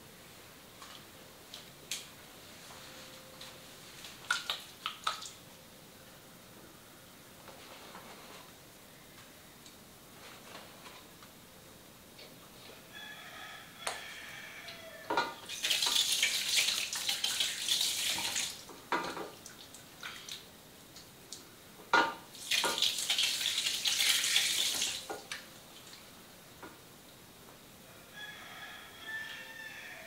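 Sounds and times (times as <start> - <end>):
tap water splashing into basin: 15.5 - 20.4, 22.0 - 25.4.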